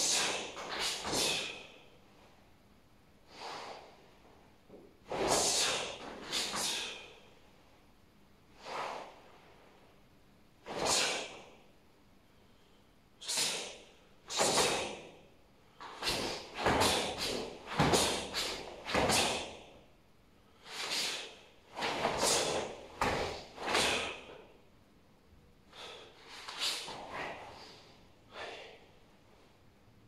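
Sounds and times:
sharp forceful exhalations: 0:00.0 - 0:01.9, 0:03.3 - 0:04.0, 0:05.1 - 0:07.3, 0:08.6 - 0:09.3, 0:10.6 - 0:11.6, 0:12.6 - 0:15.2, 0:15.8 - 0:19.8, 0:20.6 - 0:24.5, 0:25.7 - 0:28.9.

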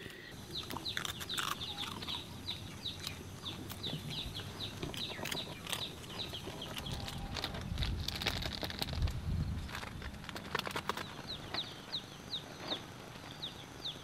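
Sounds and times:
birds chirping: 0:00.0 - 0:07.6, 0:09.4 - 0:14.0.

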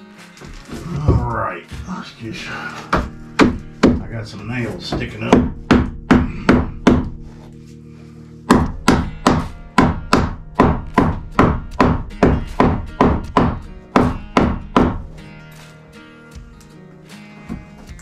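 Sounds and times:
hammer driving nails into wood: 0:08.5 - 0:15.1.

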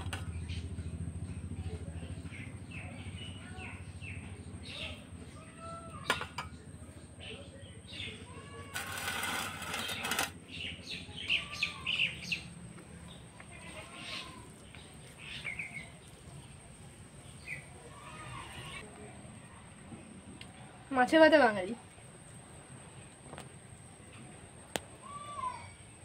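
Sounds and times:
small birds chirping: 0:00.0 - 0:18.8.

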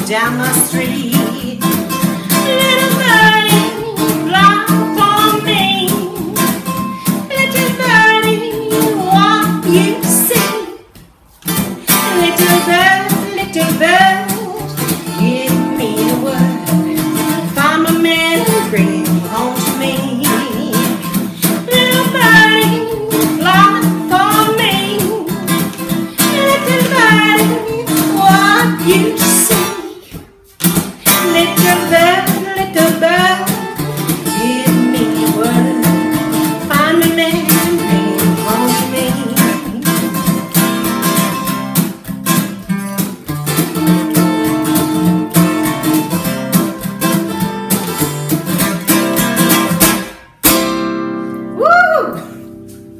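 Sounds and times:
person singing: 0:00.0 - 0:10.9, 0:11.9 - 0:30.2, 0:31.1 - 0:40.3, 0:51.6 - 0:52.4
acoustic guitar strumming: 0:00.0 - 0:52.9.

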